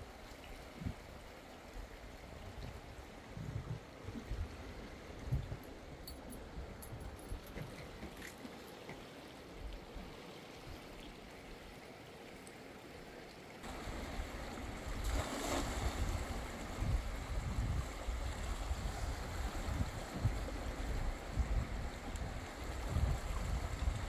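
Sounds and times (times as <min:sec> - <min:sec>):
wind buffeting microphone: 0:02.2 - 0:08.2, 0:13.7 - 0:24.0
fast river rushing: 0:08.0 - 0:24.0
cast net splashing on water: 0:14.9 - 0:16.4.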